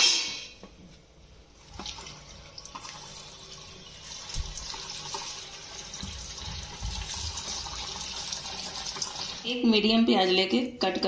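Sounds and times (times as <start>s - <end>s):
balls deep-frying in oil: 1.5s - 9.6s.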